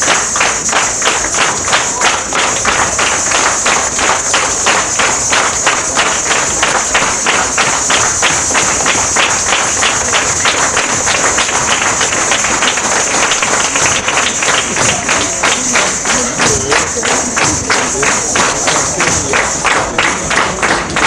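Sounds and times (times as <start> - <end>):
rhythmic clapping: 0.0 - 21.0.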